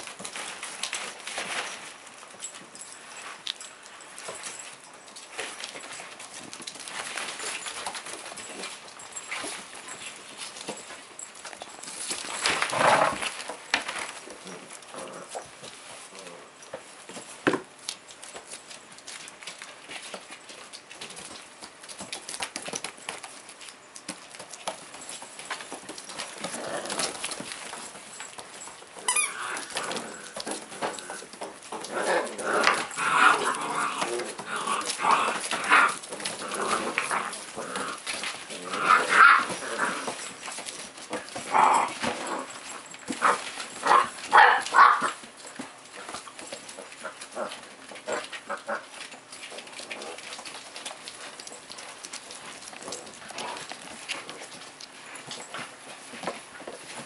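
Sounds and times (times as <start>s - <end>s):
paws scrabbling on hard floor: 0.0s - 57.0s
puppies yipping and growling: 18.2s - 57.0s.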